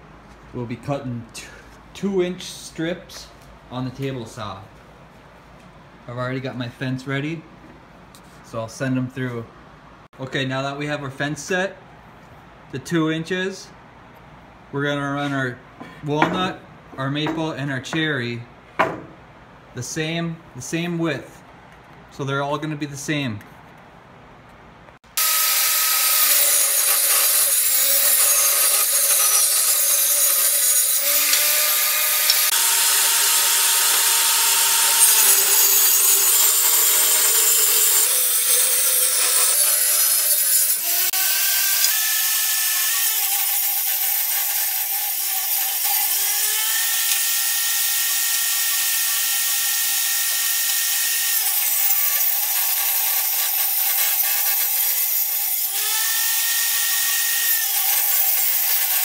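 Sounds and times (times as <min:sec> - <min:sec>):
table saw ripping wood: 0:25.1 - 0:59.0.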